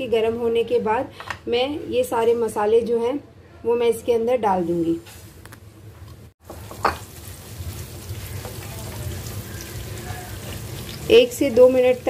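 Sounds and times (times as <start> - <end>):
spices sizzling in hot oil: 6.4 - 12.0.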